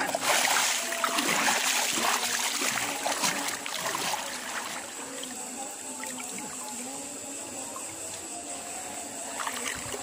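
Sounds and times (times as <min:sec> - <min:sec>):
water splashing as person wades: 0:00.0 - 0:05.0.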